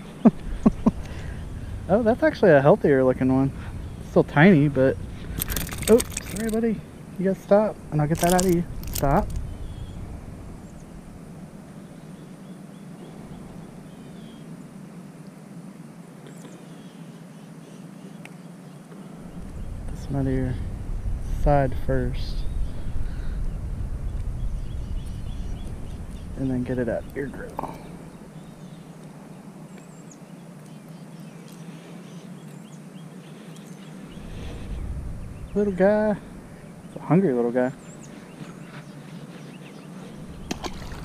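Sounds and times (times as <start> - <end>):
low hum: 0.0 - 15.5, 19.0 - 41.0
faint clicks: 5.2 - 6.6, 8.1 - 9.5
faint bird chirps: 8.3 - 11.0, 11.7 - 14.7, 22.3 - 41.0.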